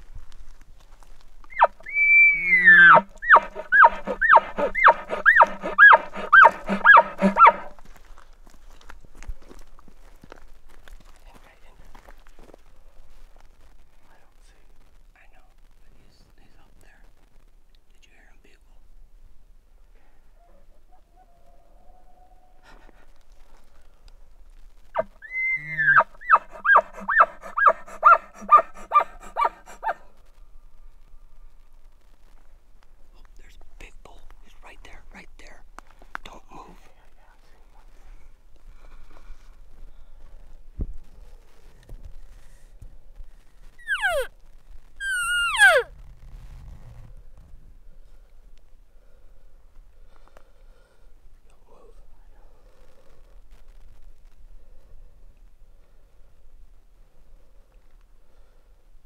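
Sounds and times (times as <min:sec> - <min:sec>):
elk bugle whistle: 0:01.6 - 0:07.7.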